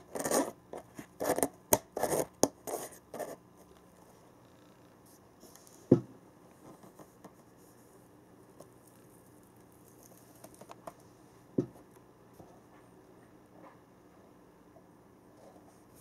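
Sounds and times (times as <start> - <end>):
faint tapping and scratching: 0.2 - 13.0.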